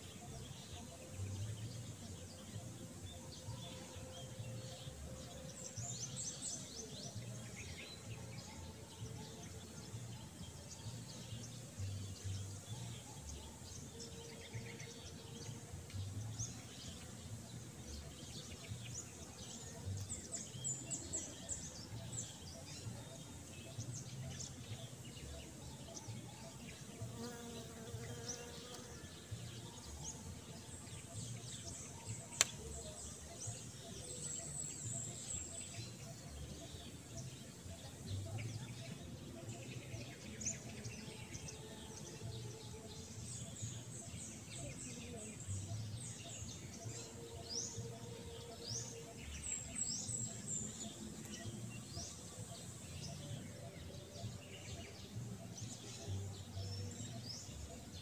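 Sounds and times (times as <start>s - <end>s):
small birds chirping: 0.0s - 58.0s
sharp click: 32.3s - 32.6s.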